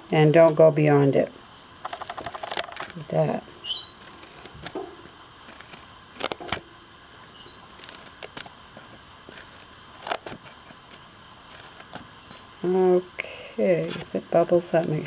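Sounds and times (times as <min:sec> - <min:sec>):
scissors snipping paper: 0:04.0 - 0:04.8, 0:05.5 - 0:06.6, 0:07.7 - 0:12.1.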